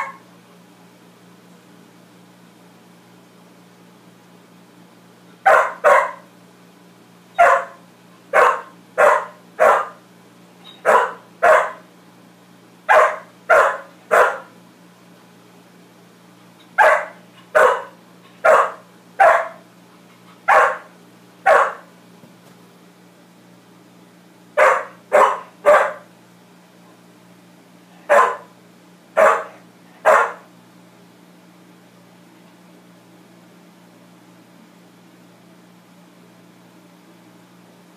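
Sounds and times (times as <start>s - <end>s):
dog barking: 0.0s - 0.2s, 5.4s - 6.3s, 7.4s - 10.0s, 10.7s - 11.9s, 12.9s - 14.5s, 16.8s - 19.6s, 20.5s - 21.9s, 24.6s - 26.1s, 28.0s - 28.5s, 29.2s - 30.5s.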